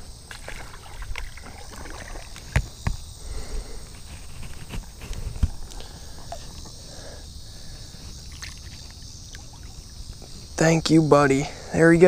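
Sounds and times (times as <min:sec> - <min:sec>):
water sloshing: 0:00.2 - 0:03.0, 0:04.1 - 0:06.9, 0:07.5 - 0:10.6.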